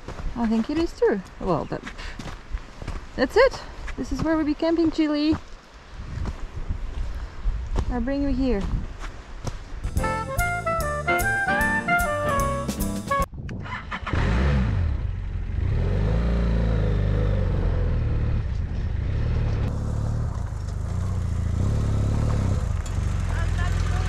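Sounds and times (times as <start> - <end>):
brief music: 9.9 - 13.3
motorcycle engine running: 14.8 - 24.0.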